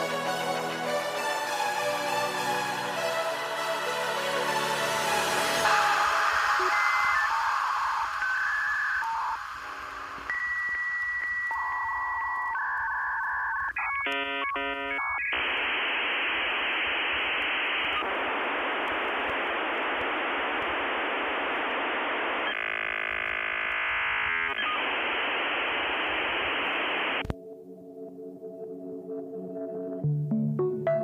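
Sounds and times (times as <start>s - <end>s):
dial-up modem tones: 5.6s - 27.3s.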